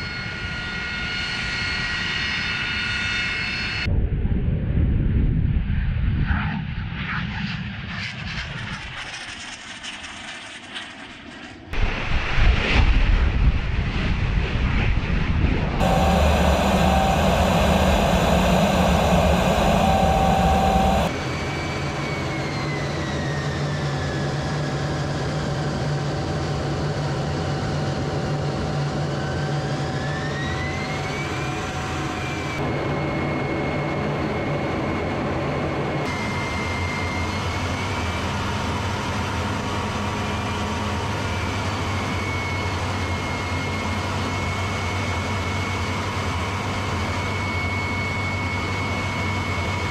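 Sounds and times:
jet engine rumble: 15.5 - 21.2
high turbine whine: 15.8 - 23.2.

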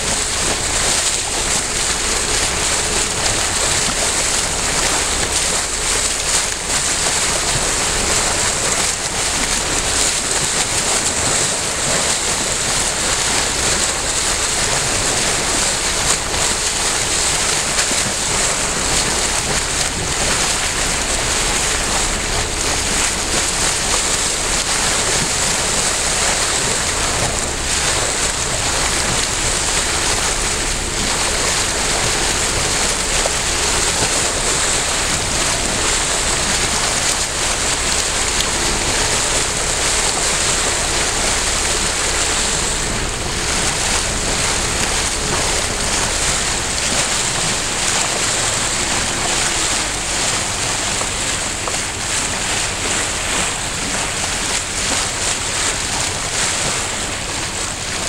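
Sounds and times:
water sloshing around a boat: 0.0 - 58.0.

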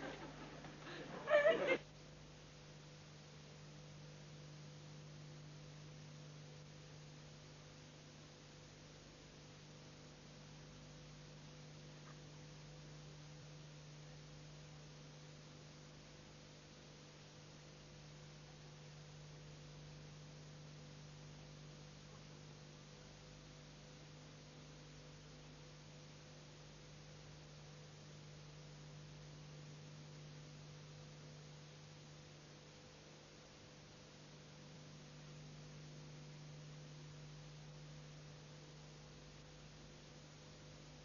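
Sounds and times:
faint hiss: 0.0 - 3.7
electrical hum: 0.0 - 41.0.

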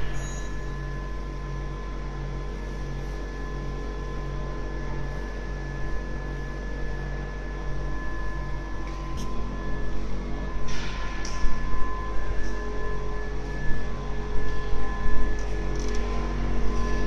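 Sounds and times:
faint steady whine: 0.0 - 17.0.

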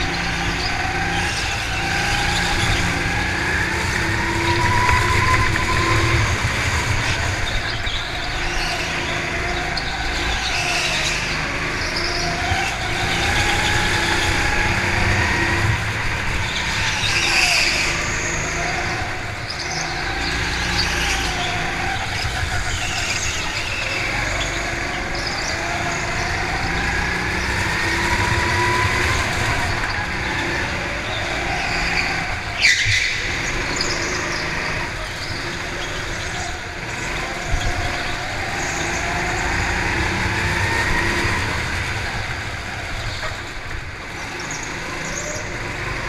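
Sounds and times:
go-kart engine revving: 0.0 - 46.0.

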